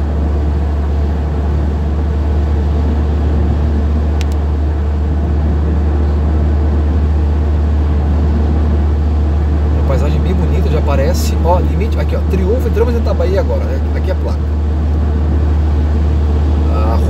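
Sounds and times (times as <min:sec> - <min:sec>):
car road noise drone: 0:00.0 - 0:17.0
small click: 0:04.2 - 0:04.4.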